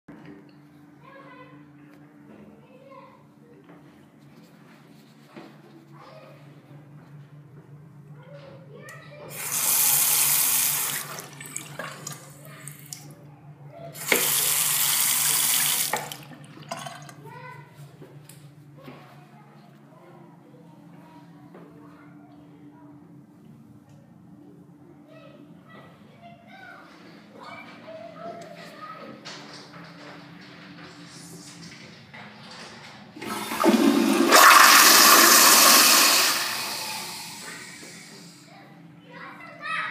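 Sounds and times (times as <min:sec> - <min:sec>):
faucet running water into sink: 0:09.3 - 0:13.0, 0:14.0 - 0:17.2, 0:33.2 - 0:38.4
toilet flushing: 0:09.3 - 0:13.1, 0:13.9 - 0:17.2, 0:33.2 - 0:38.4.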